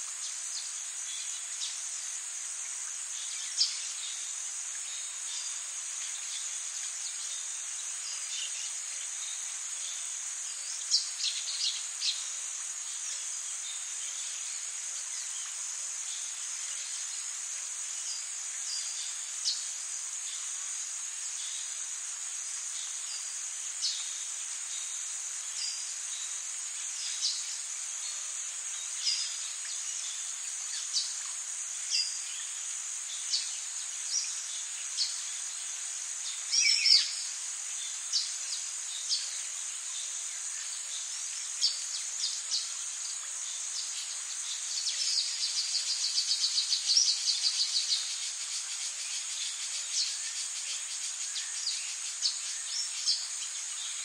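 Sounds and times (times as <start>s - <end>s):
insects chirring: 0.0s - 54.0s.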